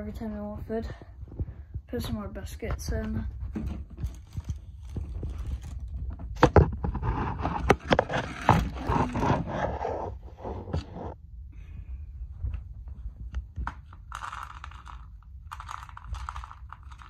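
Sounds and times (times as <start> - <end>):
knocks and handling: 2.6 - 11.2
plastic rustling: 3.5 - 9.6, 13.8 - 17.0
kibble pouring: 14.0 - 17.0.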